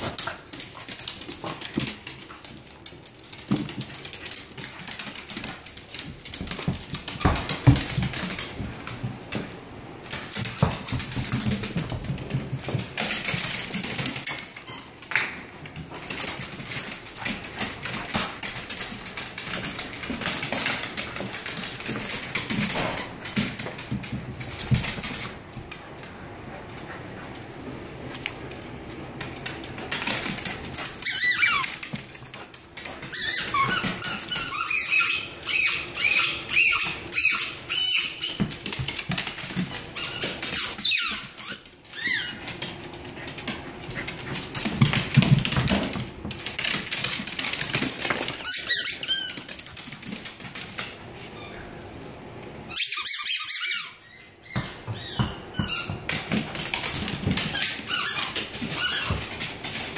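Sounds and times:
squeaky tennis balls squeaking: 40.0 - 42.3, 52.7 - 56.1.

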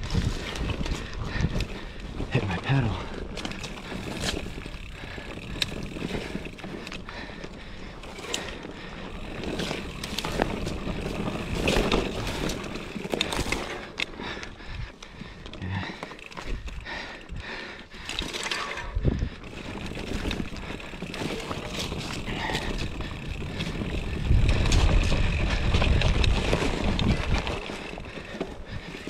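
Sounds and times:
bike tyres rumbling on dirt: 0.0 - 29.0
bike knocks and rattles: 8.0 - 14.2, 18.0 - 29.0.

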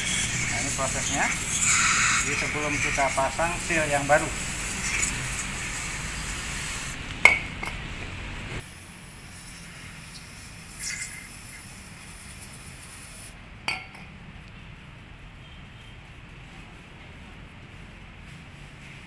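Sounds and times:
aerosol spray hissing: 0.0 - 7.0, 8.6 - 13.4.

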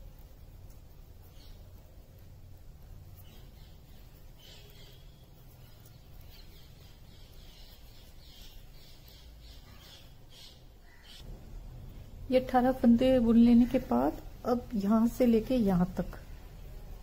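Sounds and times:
yarn rustling on knitting needle: 0.0 - 11.4
faint room hum: 0.0 - 17.0.

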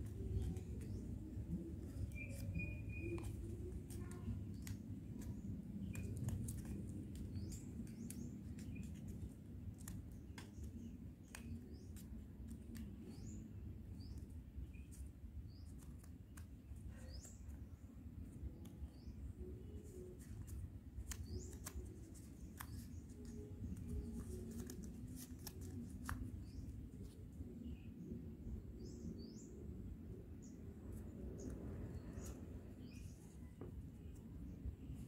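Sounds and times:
paper folding and creasing: 0.0 - 13.6, 14.2 - 17.6, 18.4 - 27.6
bird chirping: 0.2 - 6.7.

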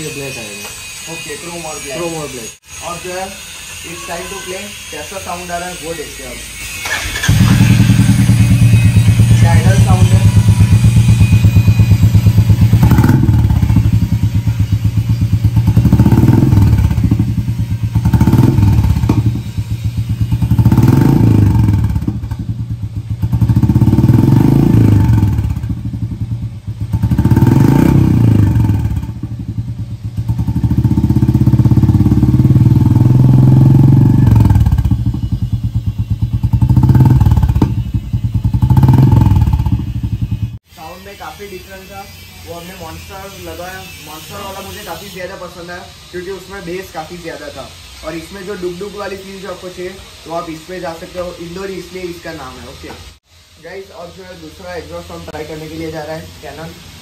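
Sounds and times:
motorcycle engine idling and revving: 4.9 - 40.7.

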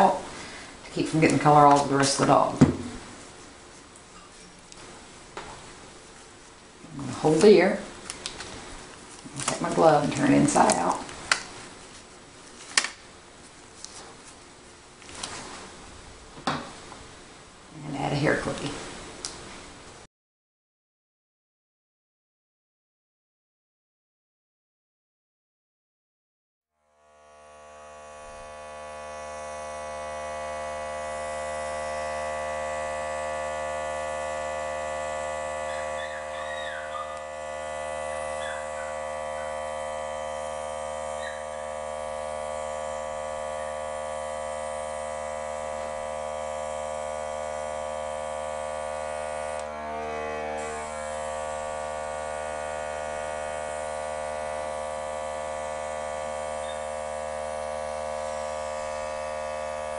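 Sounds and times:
airbrush compressor humming: 0.0 - 12.1, 26.8 - 59.9.

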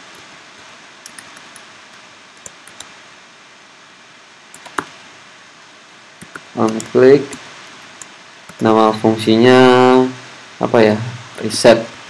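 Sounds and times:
steady background hiss: 0.0 - 12.0
keyboard keystrokes: 4.6 - 4.9.

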